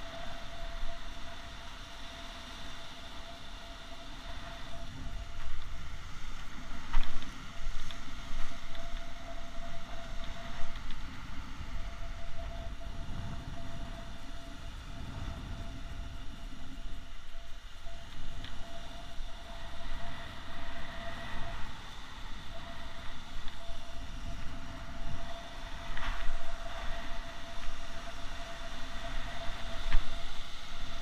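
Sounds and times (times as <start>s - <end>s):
wind rumbling on microphone: 0.0s - 31.0s.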